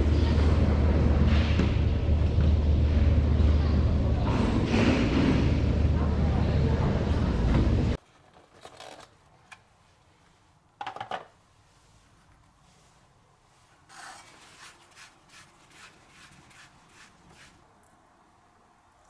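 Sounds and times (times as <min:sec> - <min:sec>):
soft rubbing scrapes: 0:11.5 - 0:17.6.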